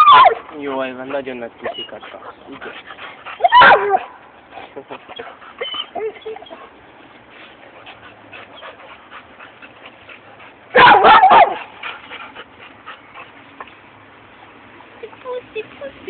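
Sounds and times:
dog whine-yelp: 0:01.6 - 0:02.3, 0:05.6 - 0:06.7.

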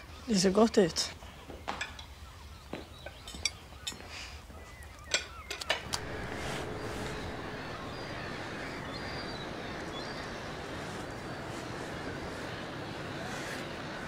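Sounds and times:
wind rushing: 0:05.8 - 0:12.8.

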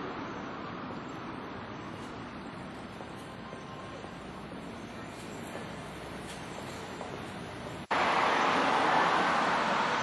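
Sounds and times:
distant road traffic: 0:00.0 - 0:10.0.

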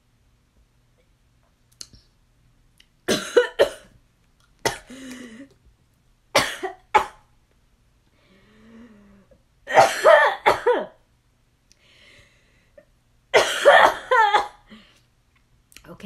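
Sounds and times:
woman coughing: 0:03.1 - 0:03.9, 0:04.7 - 0:05.2, 0:06.4 - 0:07.2, 0:09.7 - 0:11.0, 0:13.4 - 0:14.7.

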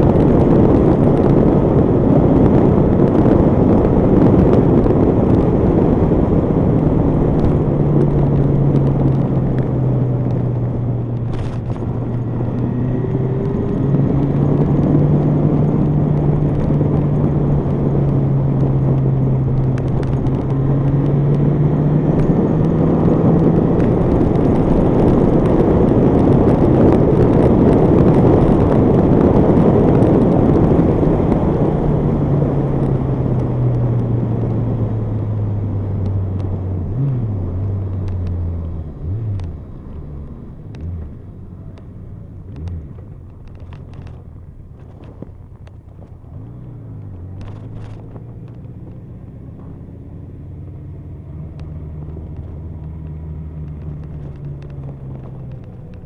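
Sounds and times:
motorcycle engine hum: 0:00.0 - 0:56.0
wind rushing on microphone: 0:00.0 - 0:56.0.

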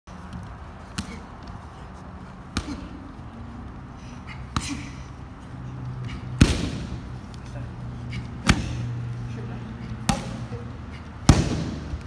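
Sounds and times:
gloved strikes smacking pads: 0:06.4 - 0:06.9, 0:08.4 - 0:08.8, 0:11.2 - 0:12.0.

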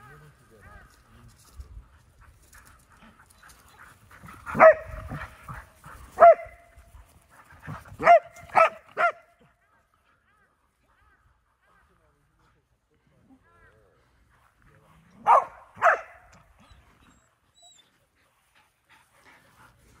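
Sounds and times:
dog barking: 0:04.5 - 0:05.3, 0:06.2 - 0:06.6, 0:08.0 - 0:09.3, 0:15.2 - 0:16.3.

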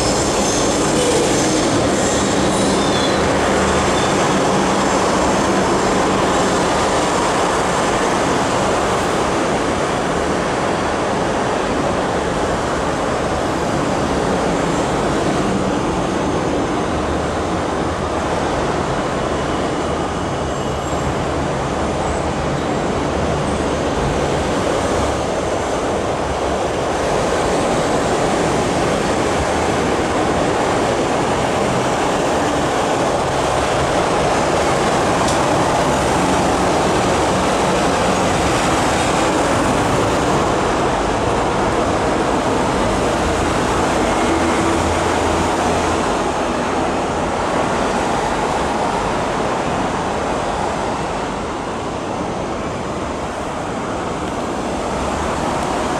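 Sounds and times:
wheel squeal: 0:00.0 - 0:04.4
train wheels rumbling on rail: 0:00.0 - 0:55.9.

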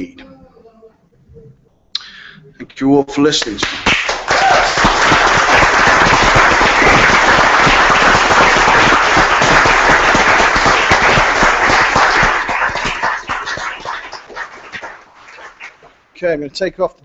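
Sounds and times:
audience applauding: 0:03.4 - 0:15.9.

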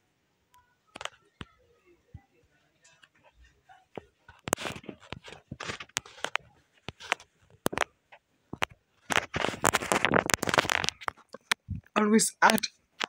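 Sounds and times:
scratchy rustling with rapid clicks: 0:02.9 - 0:11.9.

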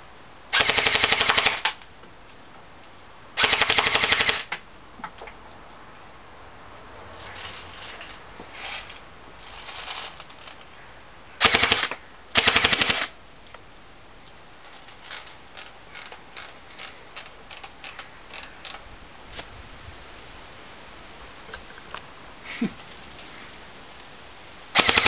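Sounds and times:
airsoft rifle full-auto bursts: 0:00.5 - 0:01.8, 0:03.4 - 0:04.6, 0:11.4 - 0:13.2, 0:24.8 - 0:25.0
faint scattered clicks: 0:04.5 - 0:06.1, 0:07.2 - 0:11.0, 0:13.4 - 0:19.5.

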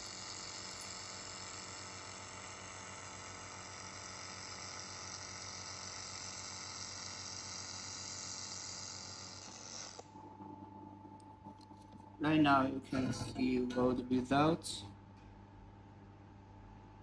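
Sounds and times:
laser welder hissing: 0:00.0 - 0:10.0
low machine hum: 0:00.0 - 0:17.0.

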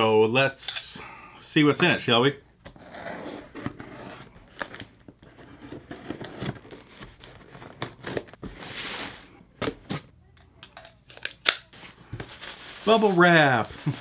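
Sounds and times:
cardboard scraping and crinkling: 0:02.8 - 0:10.1, 0:11.7 - 0:14.0.

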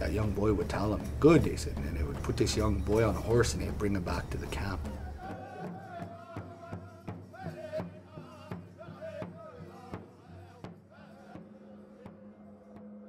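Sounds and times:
steady drum beat: 0:00.0 - 0:10.8
high voices singing: 0:00.0 - 0:13.0.

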